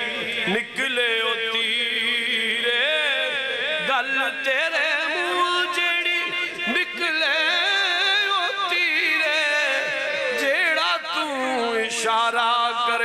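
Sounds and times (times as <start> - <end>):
man singing through microphone: 0.0 - 13.0.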